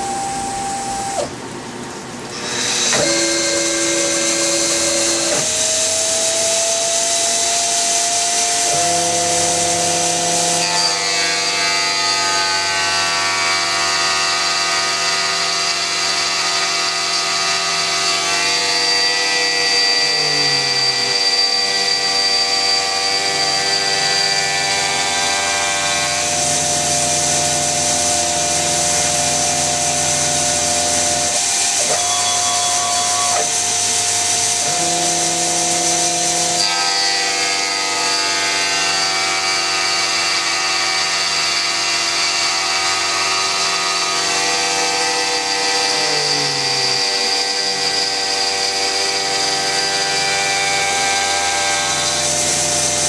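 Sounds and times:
drive motors whining: 0:00.0 - 0:01.7
mill spindle motor running: 0:00.0 - 0:12.0, 0:17.0 - 0:53.0.

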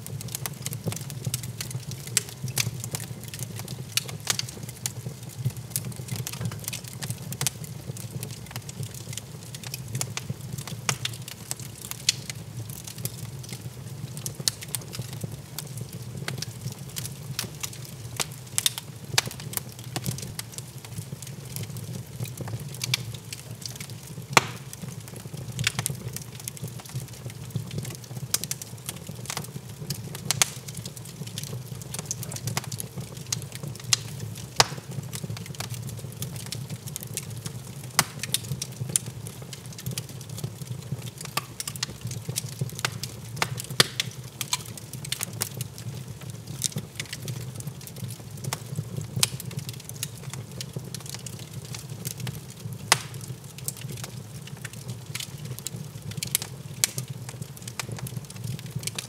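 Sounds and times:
low fire rumble: 0:00.0 - 0:59.0
wood fire crackling and popping: 0:00.0 - 0:59.0.

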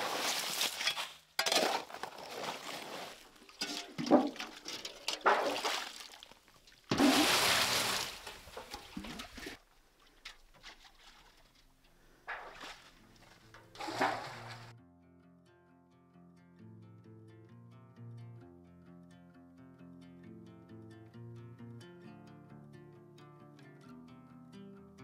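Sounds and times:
ice chunks crunching and clinking: 0:00.0 - 0:09.6
wet slush: 0:00.0 - 0:11.6, 0:12.3 - 0:14.7.

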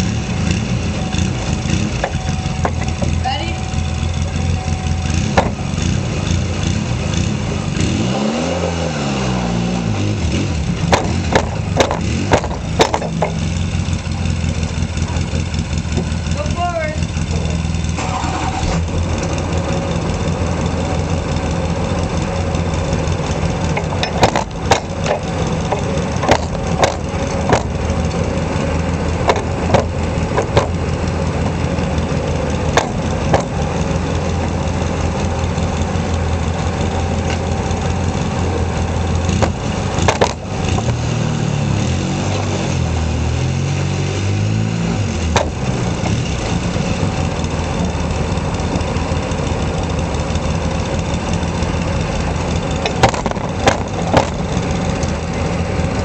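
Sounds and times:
engine running: 0:00.0 - 0:56.0
sharp knocks and clicks: 0:05.4 - 0:05.6, 0:10.9 - 0:13.6, 0:23.7 - 0:28.2, 0:29.2 - 0:30.8, 0:32.7 - 0:33.6, 0:39.3 - 0:41.0, 0:45.3 - 0:46.3, 0:52.7 - 0:54.6.

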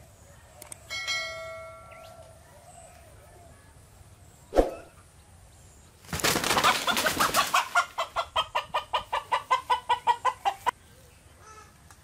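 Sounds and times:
chicken squawking: 0:06.5 - 0:10.7.

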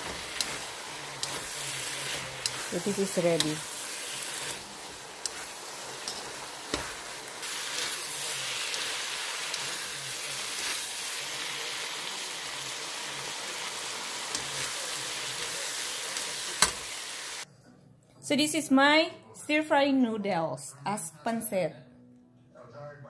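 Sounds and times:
noodles sizzling in a hot pan: 0:00.0 - 0:17.4.

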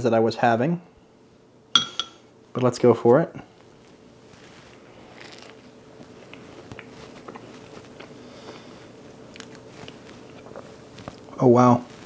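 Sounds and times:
faint steady hum: 0:00.0 - 0:12.0
chewing with small crunches: 0:03.6 - 0:12.0.

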